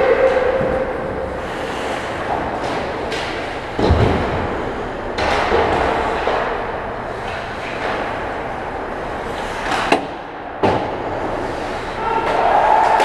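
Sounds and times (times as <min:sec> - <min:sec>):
ice skating: 0:00.0 - 0:13.0
hockey sticks clacking: 0:01.4 - 0:03.9, 0:05.2 - 0:08.4, 0:09.0 - 0:13.0
loud thud: 0:03.8 - 0:04.6.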